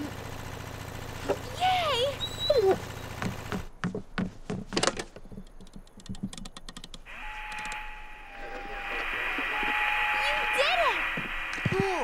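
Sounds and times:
radio static hiss: 7.1s - 12.0s
steady tone: 7.1s - 12.0s.

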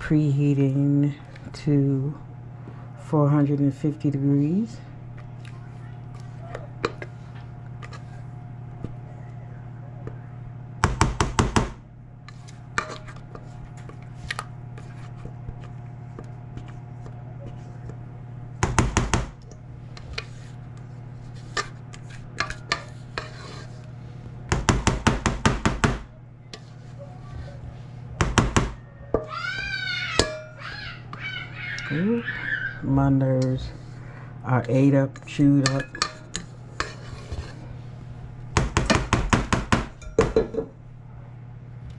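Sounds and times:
spatula scraping metal bowl: 7.8s - 8.2s, 12.3s - 15.3s, 20.0s - 23.9s, 26.5s - 27.7s, 35.2s - 37.7s
spatula tapping metal bowl: 22.4s - 23.5s, 30.2s - 30.5s, 35.2s - 37.0s.

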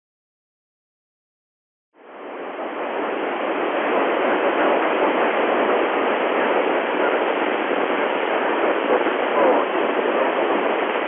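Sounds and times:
radio receiver hiss: 2.7s - 11.0s.

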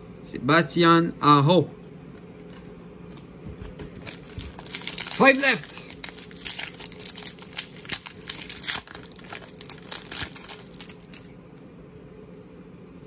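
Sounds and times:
foil wrapper tearing and crinkling: 3.9s - 11.3s.

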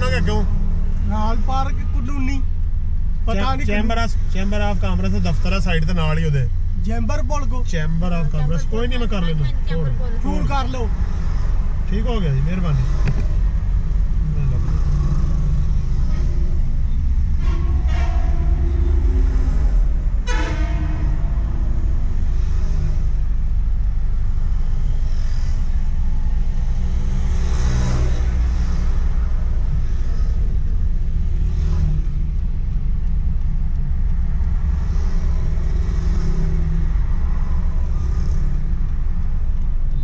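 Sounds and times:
road and engine rumble in car: 0.0s - 40.0s
car horn toots: 17.2s - 19.2s, 20.2s - 21.4s.

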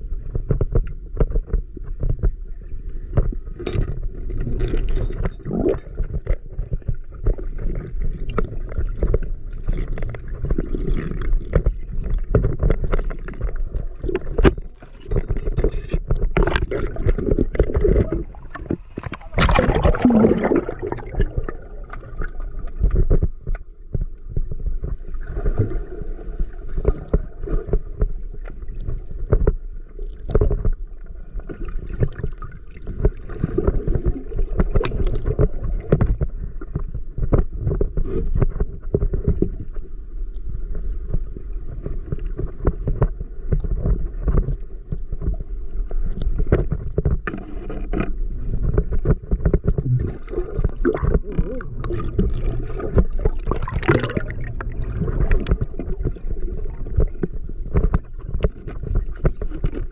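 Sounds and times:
underwater river sloshing: 0.0s - 59.9s
rush of water: 16.4s - 22.8s, 50.0s - 59.8s.

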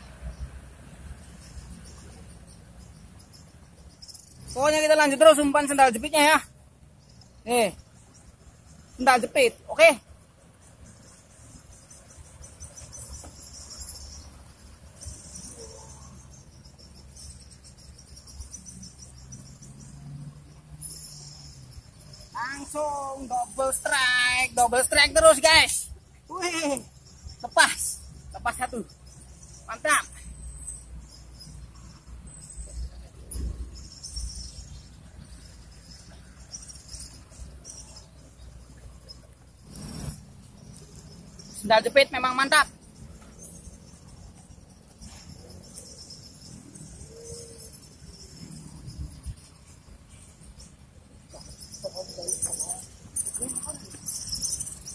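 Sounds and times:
insects chirping: 0.0s - 54.9s
rustle: 25.4s - 41.8s.

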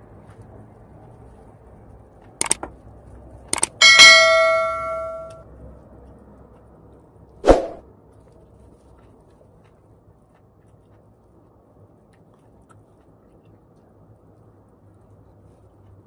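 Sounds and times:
double clicks: 2.4s - 2.7s, 3.6s - 3.8s
bright bell ding: 3.6s - 5.4s.

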